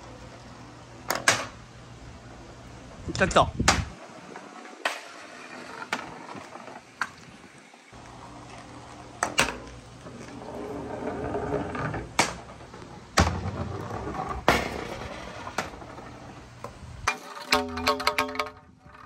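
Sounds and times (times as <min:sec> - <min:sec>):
ball rolling on track: 0:00.0 - 0:19.0
ball knocking on course: 0:09.2 - 0:16.8.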